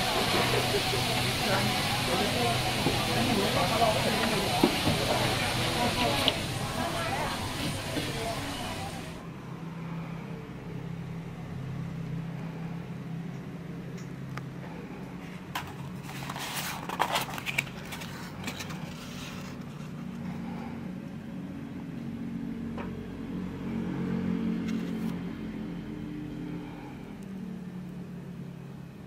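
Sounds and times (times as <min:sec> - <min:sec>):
cardboard box rustling: 0:15.9 - 0:19.9.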